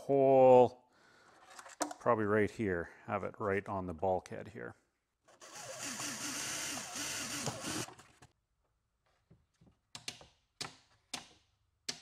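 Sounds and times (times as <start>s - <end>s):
cordless drill boring through wood: 5.3s - 8.1s.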